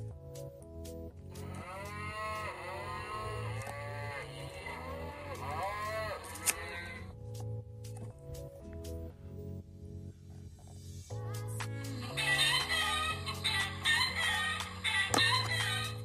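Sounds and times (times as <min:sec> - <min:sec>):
recorded cow mooing from speaker: 0:01.4 - 0:07.0.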